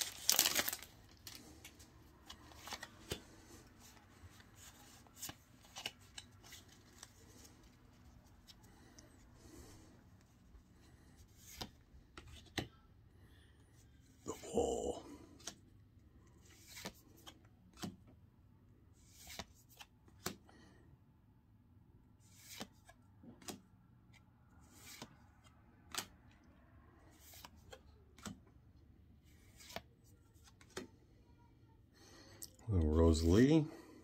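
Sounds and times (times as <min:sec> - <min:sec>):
cards rustling: 0:00.0 - 0:12.7, 0:16.4 - 0:18.1, 0:19.0 - 0:20.4, 0:22.2 - 0:23.6, 0:24.6 - 0:26.2, 0:27.1 - 0:28.6, 0:29.2 - 0:31.0.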